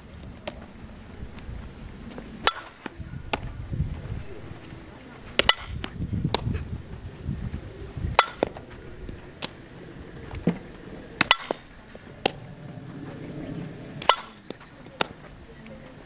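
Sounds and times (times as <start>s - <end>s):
softball bat hits: 2.4s - 3.5s, 5.3s - 6.5s, 8.1s - 8.6s, 11.2s - 12.4s, 14.0s - 15.2s.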